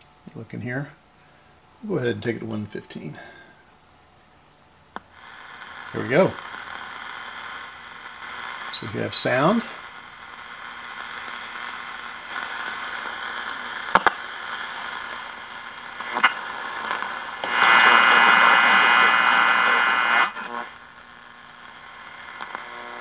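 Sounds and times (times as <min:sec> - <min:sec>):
radio static and hiss: 0:00.3 - 0:03.6, 0:04.9 - 0:23.0
loud rush of static: 0:04.9 - 0:23.0
sharp click: 0:17.4 - 0:18.0.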